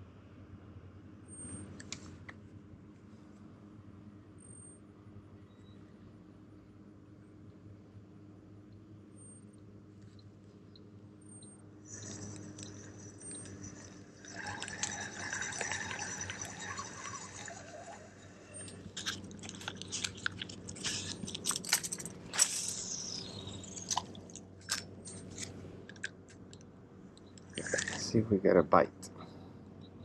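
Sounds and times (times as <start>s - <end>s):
rustling handling noise: 18.4s - 26.5s.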